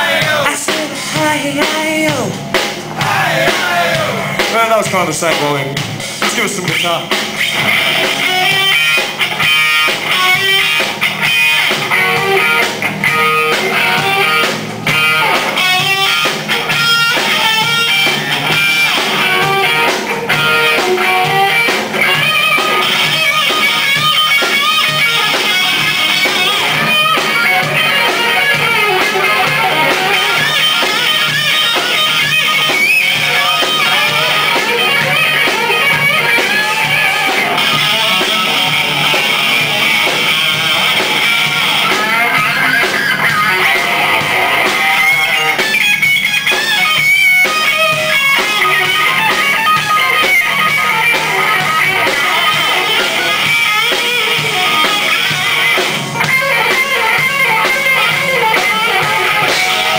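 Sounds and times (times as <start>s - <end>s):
hard rock electric guitars: 0.0s - 59.9s
lead guitar melodic lines: 0.0s - 59.9s.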